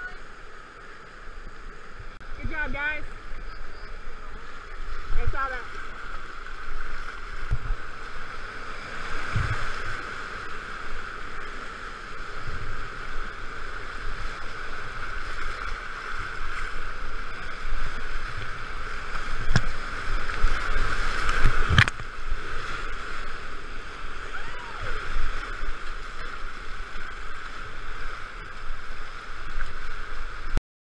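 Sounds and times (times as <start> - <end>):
whitewater rapids rushing: 13.0 - 30.1.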